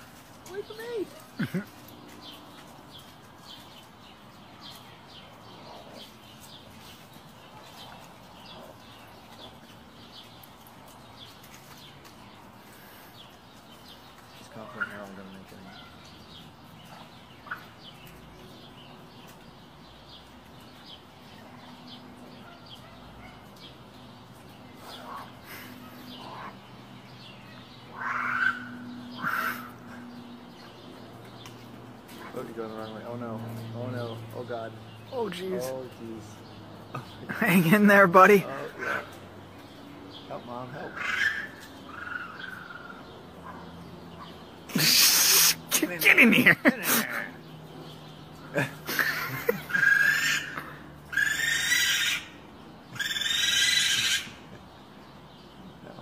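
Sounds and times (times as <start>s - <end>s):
baby raccoons crying: 27.8s - 30.6s, 40.7s - 43.7s, 44.7s - 47.4s, 48.5s - 54.6s
crow cawing: 27.9s - 30.0s, 40.9s - 42.8s, 49.6s - 52.4s, 53.0s - 54.4s.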